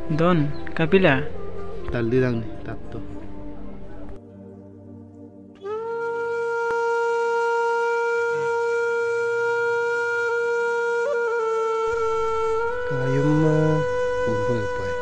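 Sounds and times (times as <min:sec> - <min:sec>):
wind instrument long note: 0:05.6 - 0:15.0.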